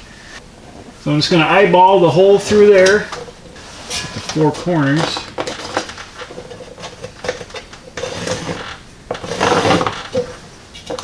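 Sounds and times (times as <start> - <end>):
marker scraping on wall: 5.6 - 10.4.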